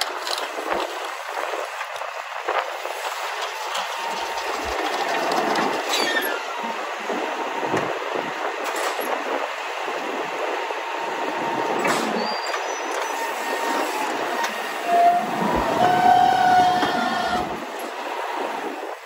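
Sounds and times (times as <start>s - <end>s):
truck engine running: 0.0s - 19.0s
hydraulic whine: 1.6s - 19.0s
falling squeal: 3.8s - 6.7s, 12.1s - 17.6s.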